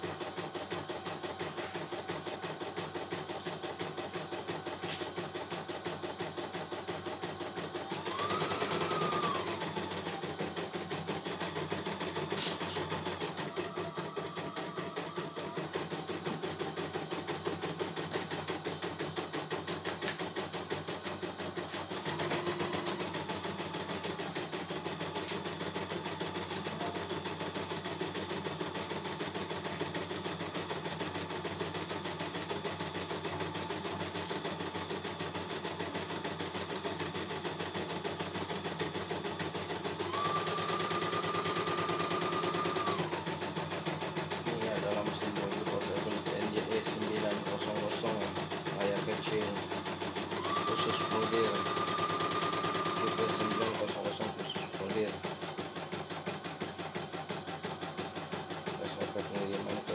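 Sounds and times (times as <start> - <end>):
embroidery machine needle clattering: 4.8 - 59.9
machine whine: 8.0 - 10.8, 50.3 - 55.1.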